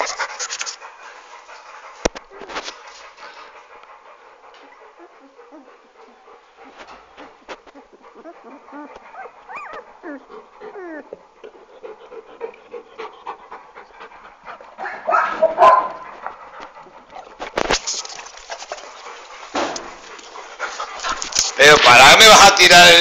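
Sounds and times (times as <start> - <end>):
puppies whimpering: 4.5 - 15.6
puppy crying: 7.8 - 11.3.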